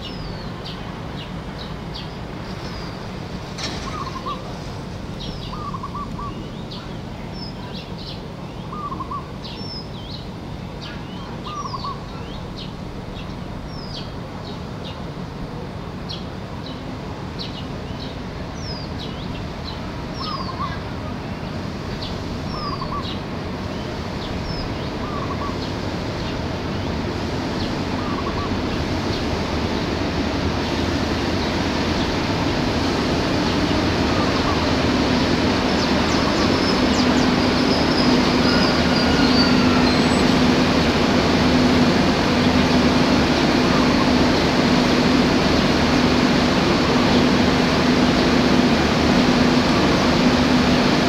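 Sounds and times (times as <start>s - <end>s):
diesel railcar rumble: 0.0s - 51.0s
birds chirping: 5.1s - 15.1s, 17.4s - 30.0s, 31.4s - 48.3s.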